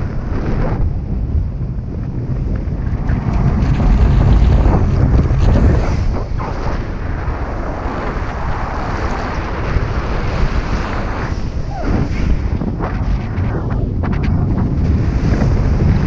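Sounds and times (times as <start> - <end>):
wind rushing past microphone: 0.0 - 16.0.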